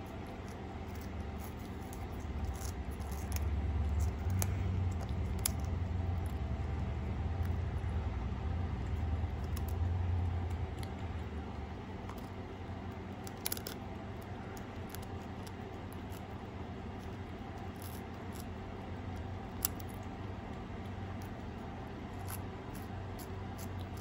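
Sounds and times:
low rumble: 0.0 - 13.3
cat crunching a chip: 0.0 - 24.0.

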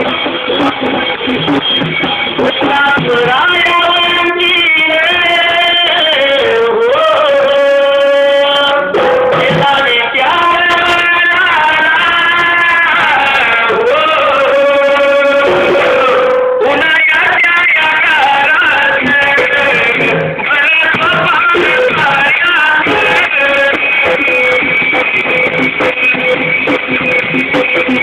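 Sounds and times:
musical accompaniment: 0.0 - 28.0
man singing folk song: 2.4 - 24.3.

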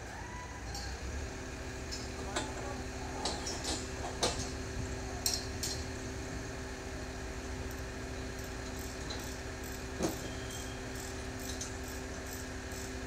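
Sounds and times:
crane engine humming: 0.0 - 13.0.

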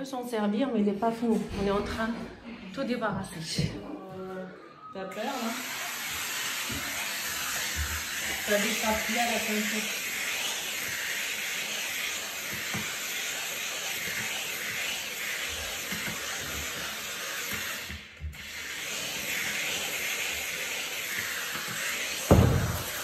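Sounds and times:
steam mop hissing: 5.1 - 23.0.

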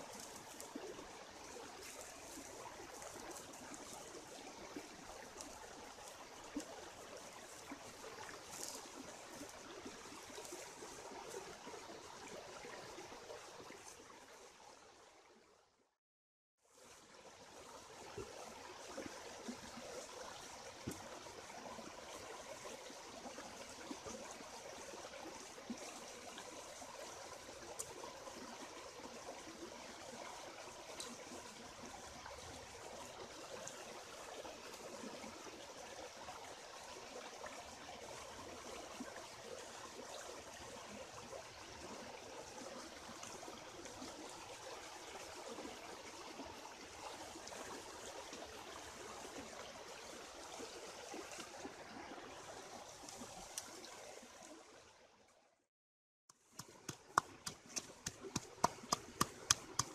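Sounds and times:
stream trickling over stones: 0.0 - 15.6, 16.6 - 55.7, 56.3 - 59.9.

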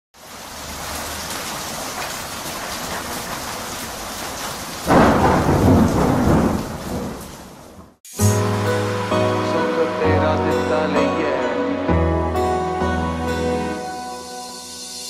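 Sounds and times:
rain hissing: 0.2 - 10.7
thunder clap rumbling: 2.9 - 8.0.

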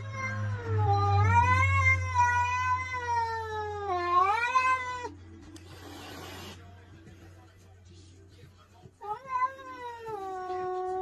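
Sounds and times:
cat yowling: 0.0 - 5.2.

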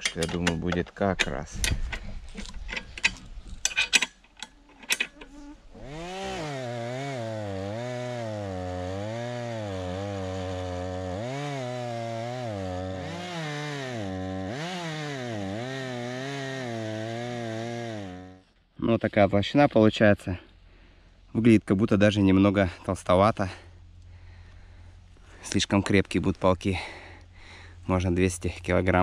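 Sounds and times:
chainsaw ripping through a log: 5.3 - 18.4.

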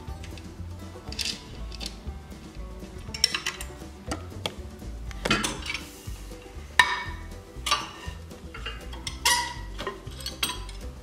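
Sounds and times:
wrench clinking on metal: 0.2 - 2.0, 3.0 - 3.8, 6.8 - 10.9.

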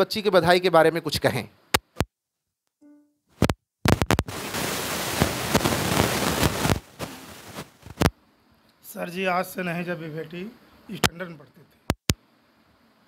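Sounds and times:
rustling crackle and hiss: 3.9 - 8.1.

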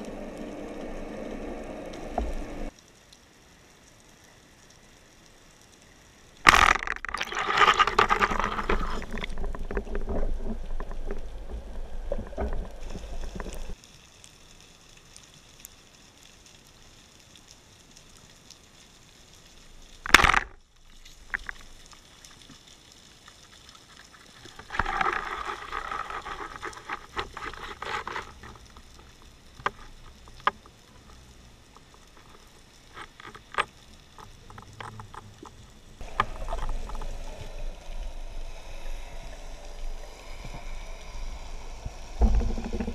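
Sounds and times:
rushing gurgling underwater water: 34.5 - 42.9.

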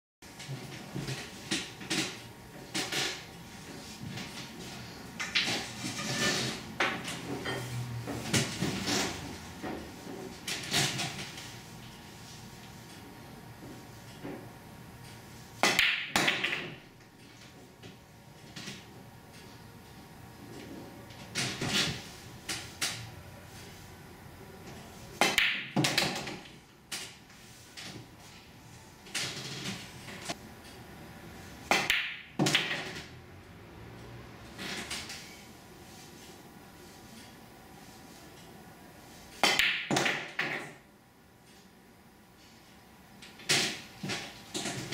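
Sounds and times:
pool balls clacking: 15.6 - 16.9, 31.7 - 33.2, 39.4 - 40.9.

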